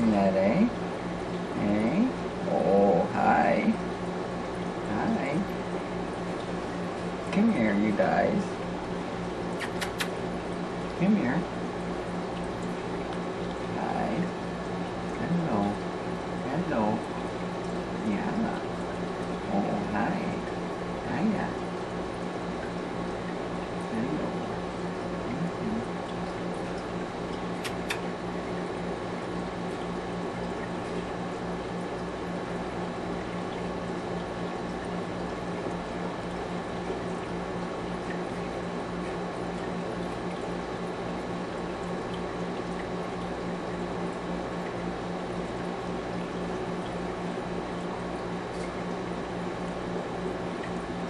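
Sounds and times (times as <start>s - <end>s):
low electrical hum: 0.0s - 51.0s
water bubbling and trickling: 0.1s - 51.0s
small click: 9.6s - 10.2s, 27.6s - 28.1s.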